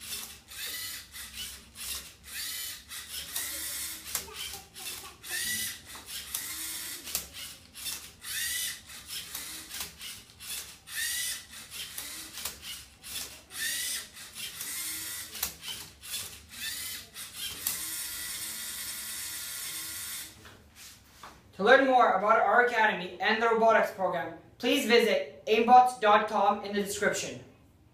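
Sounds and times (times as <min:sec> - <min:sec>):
robot motors whining: 0:00.0 - 0:20.3.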